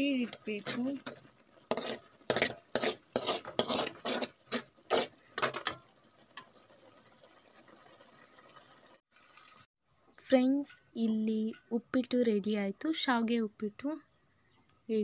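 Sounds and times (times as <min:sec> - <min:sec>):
metal spatula scraping a pan: 0:00.1 - 0:07.0.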